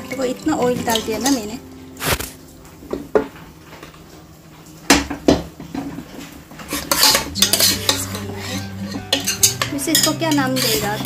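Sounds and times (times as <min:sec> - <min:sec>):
metal spoon scraping a pan: 0:06.6 - 0:11.0.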